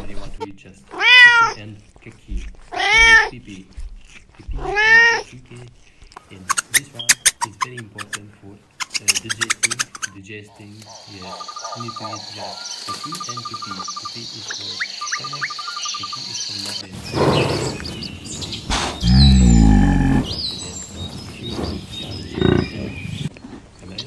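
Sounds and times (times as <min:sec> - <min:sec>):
birds trilling and chirping: 0:06.3 - 0:24.0
insects buzzing: 0:06.3 - 0:24.0
cow mooing: 0:19.0 - 0:20.3.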